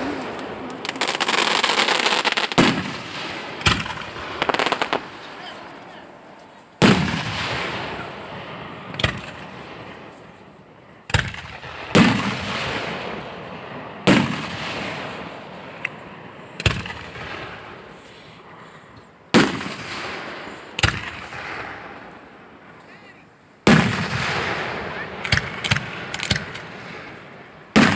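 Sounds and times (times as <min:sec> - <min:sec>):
fireworks bursting with sharp bangs: 0:00.0 - 0:27.9.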